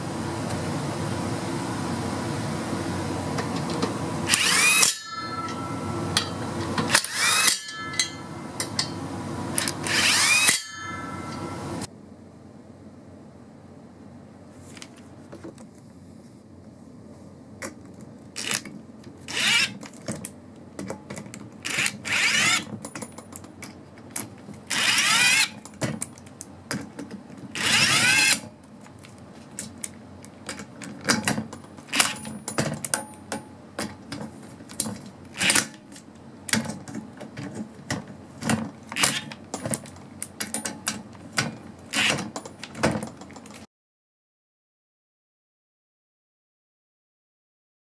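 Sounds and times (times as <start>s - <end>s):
impact wrench hammering: 4.3s - 9.0s, 9.6s - 11.8s.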